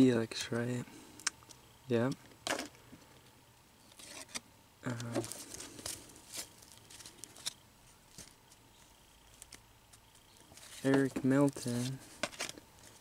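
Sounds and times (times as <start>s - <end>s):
paper cards flipping and sliding: 4.0s - 8.6s, 10.4s - 13.0s.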